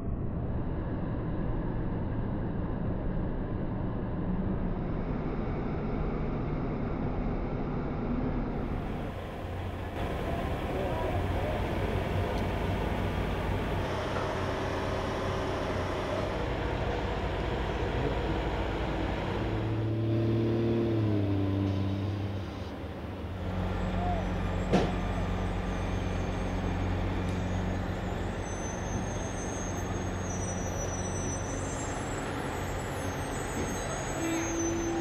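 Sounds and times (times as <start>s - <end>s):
diesel truck engines running: 7.6s - 35.0s.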